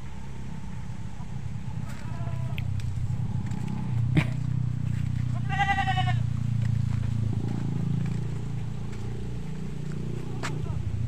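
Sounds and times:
high bleat: 1.8s - 2.6s, 5.3s - 6.3s.

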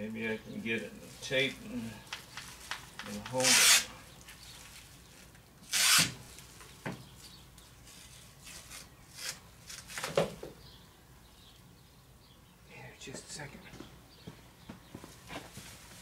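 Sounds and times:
plastic film crinkling: 1.0s - 6.8s
masking tape being handled: 1.2s - 10.4s.

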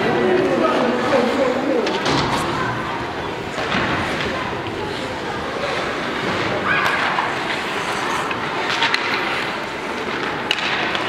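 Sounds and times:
skates scraping ice: 0.2s - 11.0s
hockey sticks and puck clacking: 3.3s - 11.0s.

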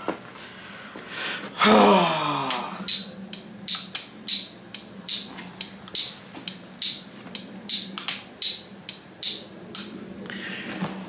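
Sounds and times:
turn signal flasher ticking: 2.9s - 9.9s.

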